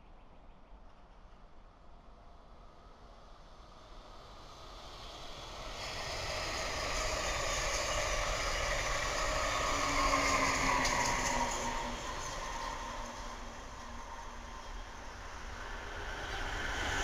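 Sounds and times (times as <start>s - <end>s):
train wheels rolling on rails: 4.0s - 17.0s.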